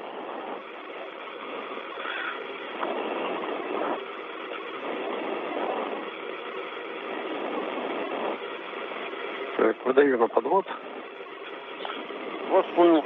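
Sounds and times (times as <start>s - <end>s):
radio channel hiss: 0.0s - 13.0s.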